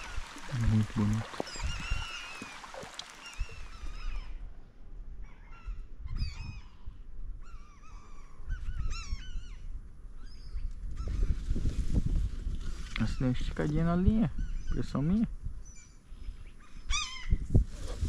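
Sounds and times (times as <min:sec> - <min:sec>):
waterbirds calling: 0:00.0 - 0:04.4.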